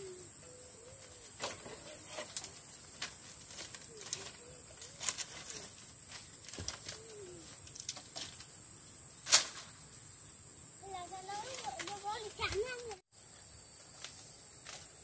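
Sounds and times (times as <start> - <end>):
dove cooing: 0.0 - 2.4, 3.8 - 5.8, 6.8 - 7.6.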